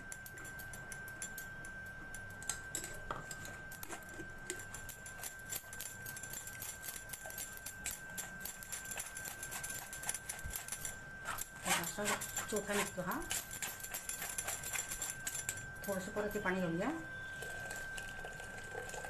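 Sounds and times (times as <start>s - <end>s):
spoon scraping metal strainer: 8.6s - 16.4s.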